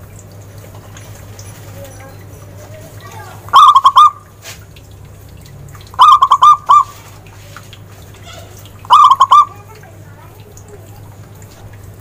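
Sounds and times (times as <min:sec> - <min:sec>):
dove cooing: 0:01.8 - 0:04.3, 0:06.0 - 0:07.2, 0:08.2 - 0:09.8.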